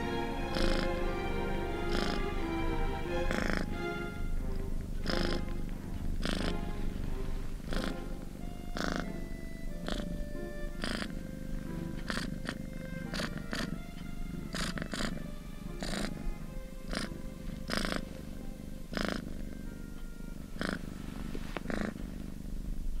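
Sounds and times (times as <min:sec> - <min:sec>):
kittens mewing: 0:00.0 - 0:02.4, 0:03.0 - 0:03.8, 0:04.9 - 0:22.6
soft background music: 0:00.0 - 0:23.0.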